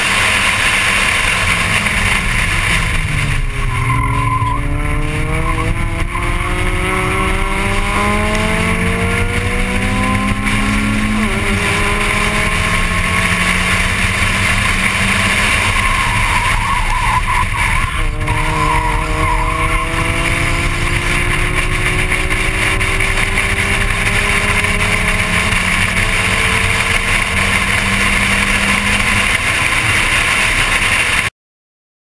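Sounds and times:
gear change: 0.0s - 31.3s
race car engine accelerating: 0.0s - 31.3s
wind and road noise: 0.0s - 31.3s
tyres squealing: 13.9s - 20.0s.

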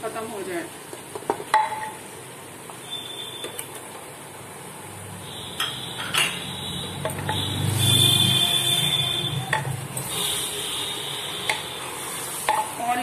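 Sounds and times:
spatula stirring and knocking pot: 0.9s - 2.0s, 7.0s - 7.5s, 9.5s - 10.1s, 11.4s - 13.0s
meat sizzling in oil: 6.5s - 13.0s.

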